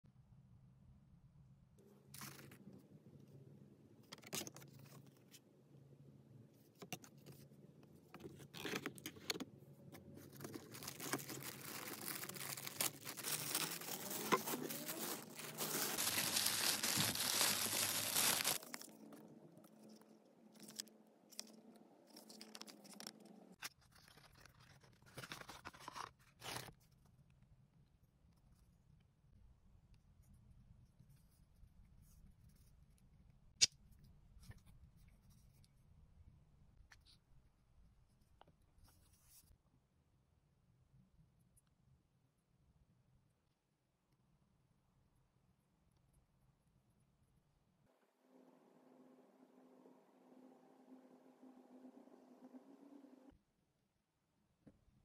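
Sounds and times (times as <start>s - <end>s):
tissue paper crinkling: 10.2s - 19.0s.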